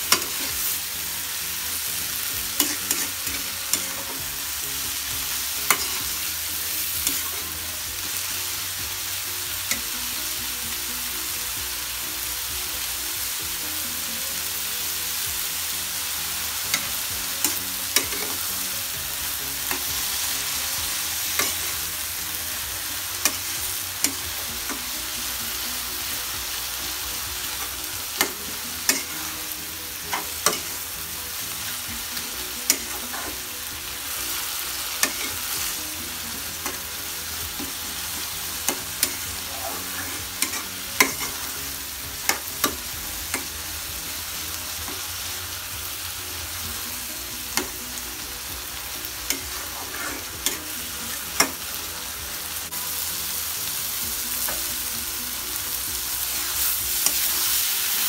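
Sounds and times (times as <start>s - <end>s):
food sizzling in a wok: 0.0s - 58.0s.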